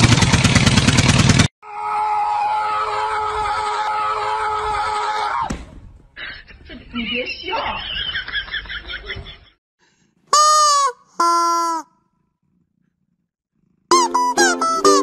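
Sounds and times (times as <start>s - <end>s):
plucked-string music: 13.9s - 15.0s.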